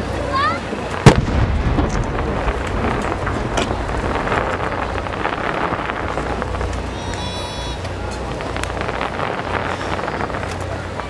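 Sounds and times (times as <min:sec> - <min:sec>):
firework bang: 0:00.9 - 0:07.2, 0:07.8 - 0:10.6.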